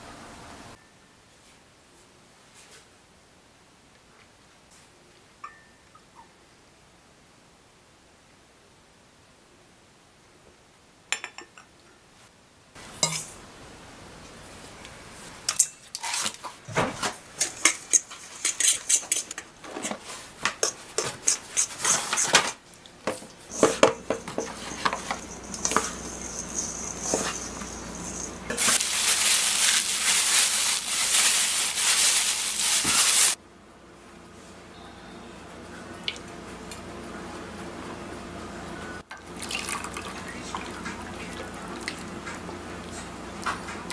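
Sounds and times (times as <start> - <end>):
utensil scraping mixing bowl: 17.4 - 22.5, 23.2 - 29.1.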